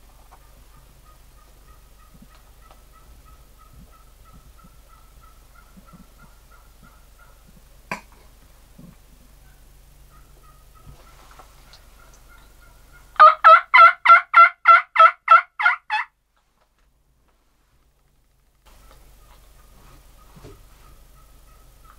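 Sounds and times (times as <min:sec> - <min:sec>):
turkey calling: 0:00.2 - 0:07.6, 0:09.3 - 0:16.1, 0:18.7 - 0:21.9.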